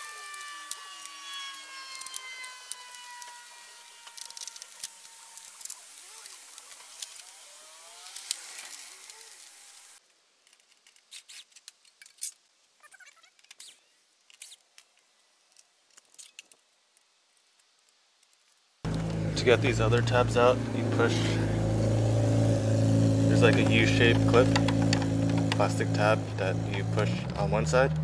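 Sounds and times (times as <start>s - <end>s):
small screws and trim clicking: 0.0s - 9.6s, 13.3s - 19.1s.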